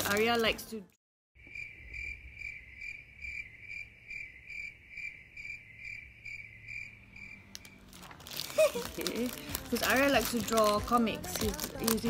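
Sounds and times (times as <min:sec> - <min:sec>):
cricket chirping: 0:01.4 - 0:07.8.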